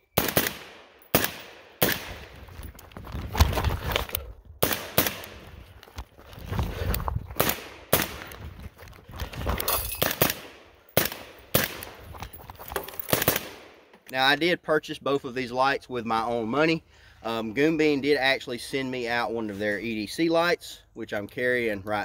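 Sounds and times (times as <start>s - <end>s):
rifle shots: 0.1s - 2.4s, 4.6s - 5.5s, 7.4s - 8.4s, 10.0s - 12.0s, 13.1s - 13.8s.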